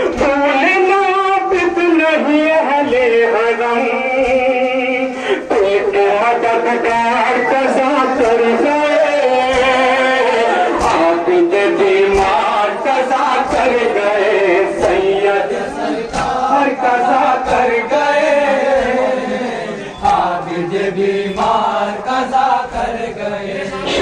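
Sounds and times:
men chanting in unison: 0.0s - 24.0s
chest-beating slaps: 6.8s - 23.0s.

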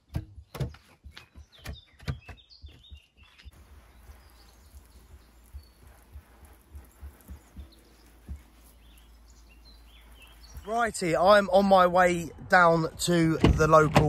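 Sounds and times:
sharp knocks and clicks: 0.0s - 3.6s
bird chirps: 0.4s - 11.6s.

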